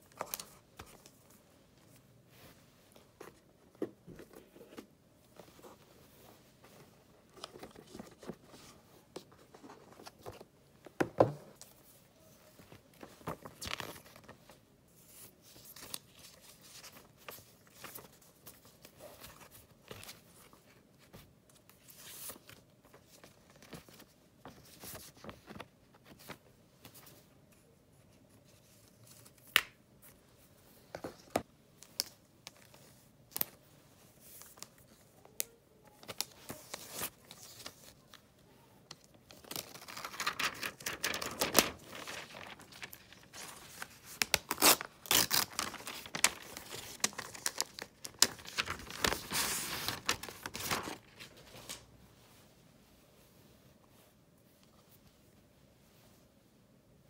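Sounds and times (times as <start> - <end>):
plastic wrap tearing and crinkling: 39.4 - 51.1.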